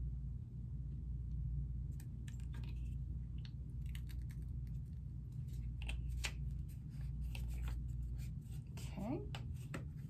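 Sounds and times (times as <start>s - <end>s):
low hum: 0.0s - 10.0s.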